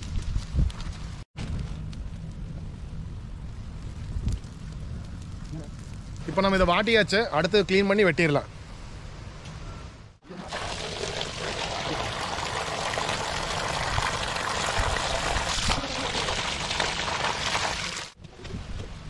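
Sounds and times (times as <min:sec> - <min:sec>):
water pouring and splashing: 0:10.2 - 0:18.2.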